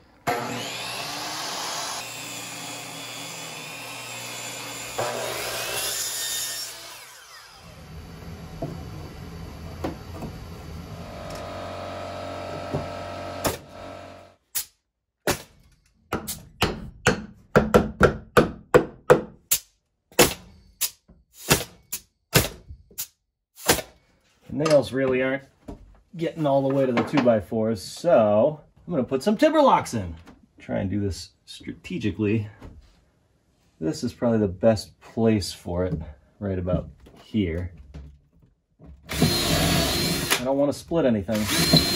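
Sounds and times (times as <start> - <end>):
power saw cutting wood: 0.2 - 14.4, 39.1 - 40.6, 41.3 - 41.9
hammer nailing wood: 16.1 - 19.6.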